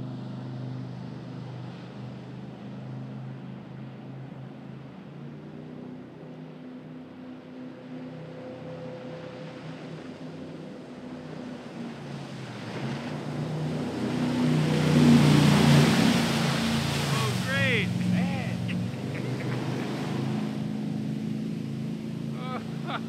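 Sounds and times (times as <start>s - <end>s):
boat engine running at speed: 0.0s - 23.0s
rush of wake and spray: 7.6s - 23.0s.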